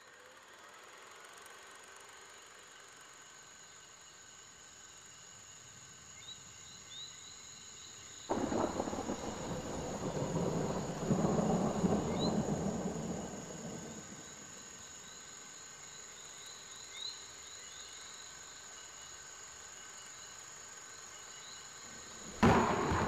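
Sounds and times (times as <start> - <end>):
insects chirring: 0.9 - 23.0
thunder rolling: 8.3 - 14.6, 21.9 - 23.0.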